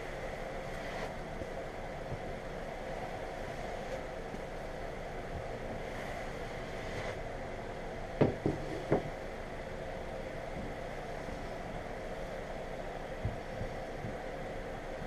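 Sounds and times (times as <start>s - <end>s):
steady background noise: 0.0s - 15.0s
wooden tools knocking on table: 8.2s - 9.1s.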